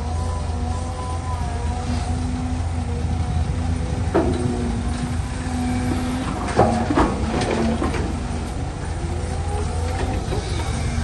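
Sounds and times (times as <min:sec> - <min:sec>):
excavator diesel drone: 0:00.0 - 0:11.0
hydraulic whine: 0:00.0 - 0:11.0
rocks clattering into truck bed: 0:06.5 - 0:08.2.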